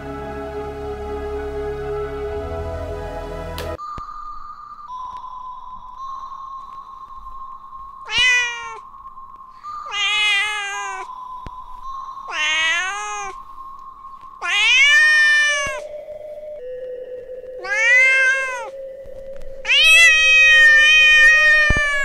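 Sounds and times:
steady high tone: 0:00.0 - 0:22.0
cat meowing: 0:08.0 - 0:08.8, 0:09.9 - 0:11.1, 0:12.3 - 0:13.4, 0:14.4 - 0:15.8, 0:17.6 - 0:18.8, 0:19.6 - 0:22.0.

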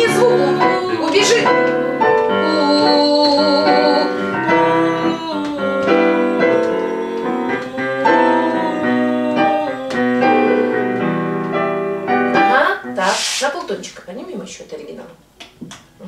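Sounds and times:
person singing with vibrato: 0:00.0 - 0:11.5
digital piano chords: 0:00.0 - 0:13.2.

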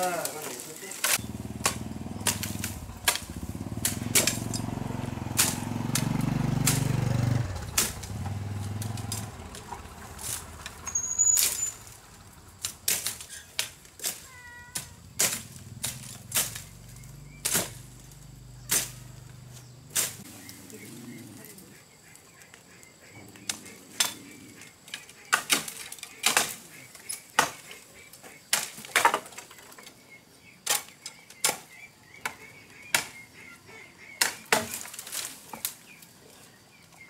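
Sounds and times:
machetes chopping bamboo: 0:00.0 - 0:04.7, 0:05.3 - 0:10.8, 0:12.6 - 0:19.2, 0:19.9 - 0:20.3, 0:25.3 - 0:27.8, 0:28.5 - 0:29.4, 0:30.6 - 0:33.2, 0:34.2 - 0:35.8
bird chirping: 0:00.0 - 0:05.2, 0:14.3 - 0:25.5, 0:29.4 - 0:34.8.

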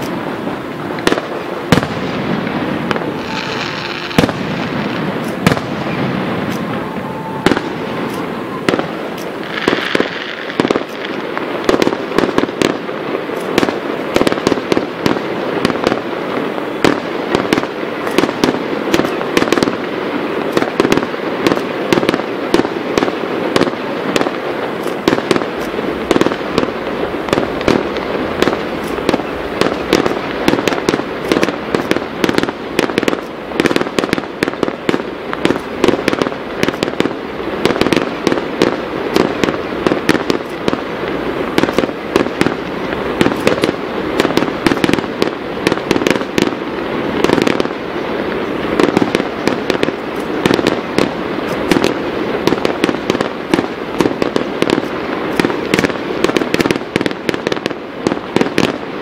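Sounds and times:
fireworks bangs and crackles: 0:00.0 - 0:59.0.

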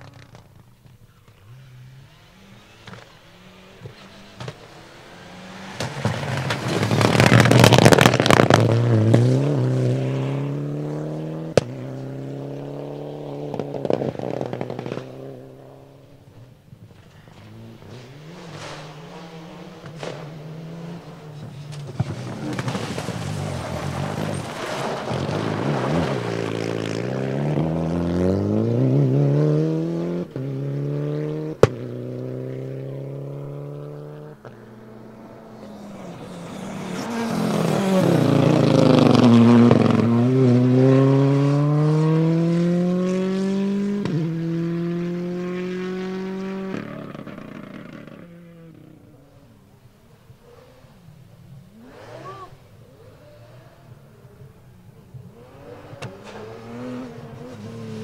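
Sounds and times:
rally car engines at full throttle: 0:00.0 - 0:58.0
sharp crack: 0:05.6 - 0:09.2, 0:18.4 - 0:27.0.

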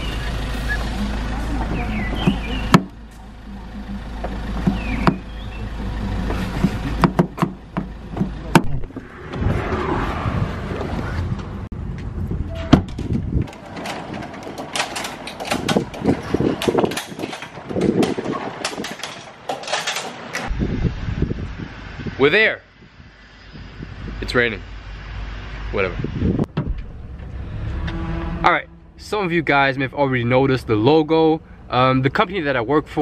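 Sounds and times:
vehicle rumble: 0:00.0 - 0:33.0
car door knocks: 0:04.6 - 0:05.3, 0:07.0 - 0:08.8
knocks and clatter: 0:06.2 - 0:09.4, 0:10.8 - 0:20.5, 0:26.5 - 0:28.0.

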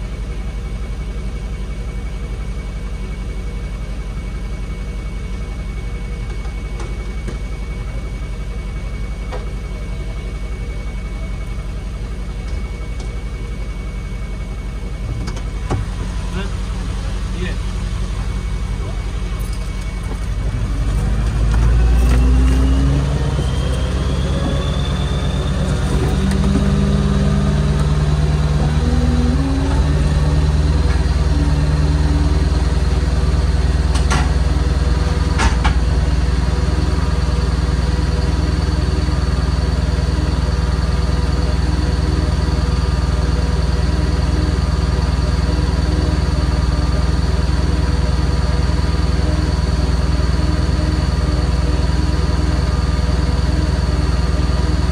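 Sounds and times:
thin whine: 0:00.0 - 0:54.9
truck engine revving: 0:14.9 - 0:54.9.

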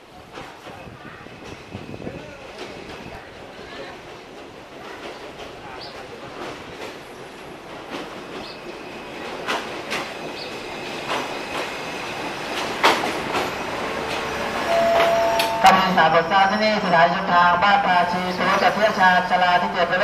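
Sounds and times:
diesel railcar pulling in: 0:00.0 - 0:20.0
wheels clicking over rail joints: 0:12.5 - 0:15.6.

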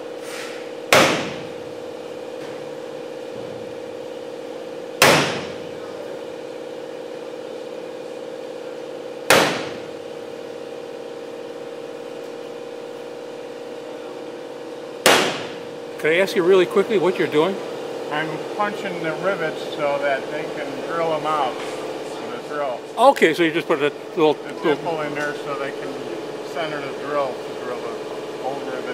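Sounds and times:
steady hum: 0:00.0 - 0:28.9
center punch striking metal rivets: 0:00.9 - 0:01.5, 0:05.0 - 0:05.6, 0:09.3 - 0:09.8.

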